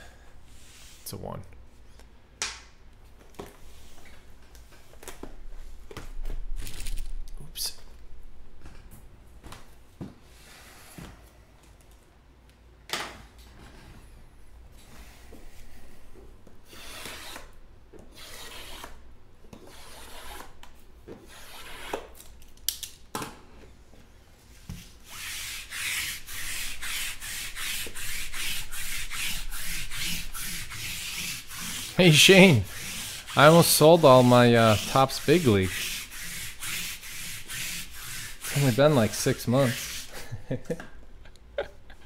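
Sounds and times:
quick rubbing strokes: 25.0s - 40.1s.

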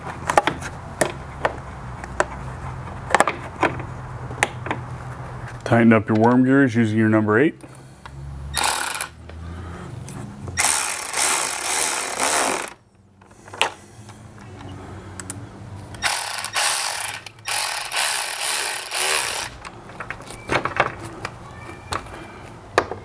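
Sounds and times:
ratchet wrench clicking: 8.6s - 9.2s, 10.6s - 12.8s, 16.0s - 19.7s.

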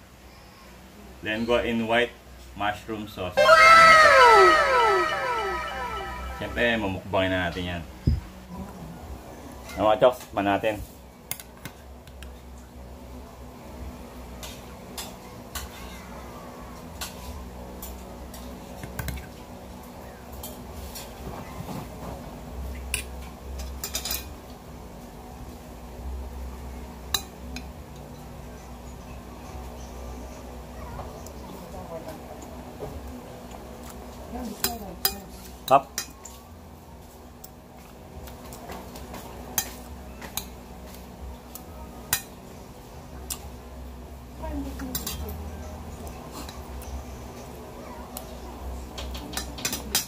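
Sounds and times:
cutlery clinking on a plate: 39.6s - 40.5s.

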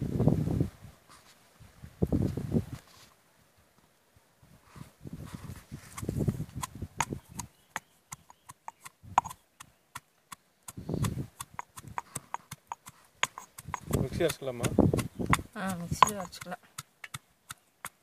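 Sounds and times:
pestle pounding in stone mortar: 6.6s - 18.0s.

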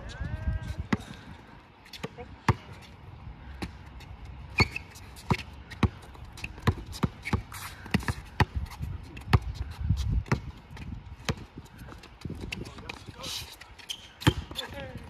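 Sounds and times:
basketball bouncing on hard court: 4.6s - 9.5s, 10.2s - 11.5s.

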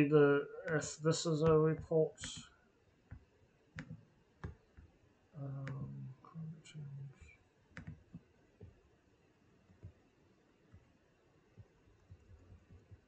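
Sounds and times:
low murmur of voice: 5.4s - 7.3s.

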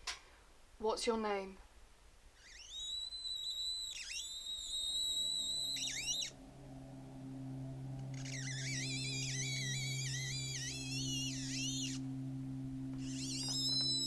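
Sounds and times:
high thin whining tones: 2.3s - 14.0s
wavering high tone: 2.4s - 14.0s
low drone: 4.3s - 14.0s.

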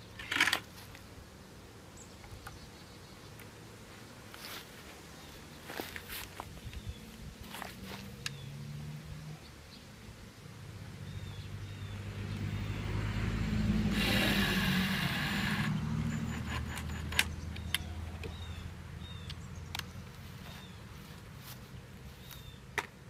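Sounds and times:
vehicle passing: 6.9s - 22.2s
cordless drill whirring: 13.9s - 17.3s
sharp clicks: 14.0s - 18.4s, 19.2s - 20.0s.

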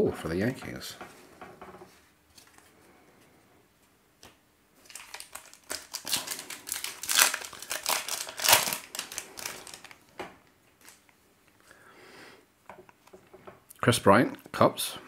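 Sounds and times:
foil wrapper tearing and crinkling: 4.8s - 10.0s.

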